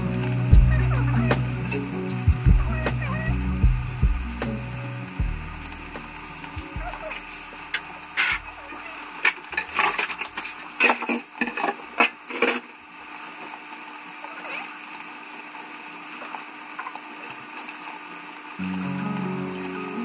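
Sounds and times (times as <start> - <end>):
tap water running into sink: 0.0 - 20.0
bowls and utensils clattering: 7.0 - 12.7.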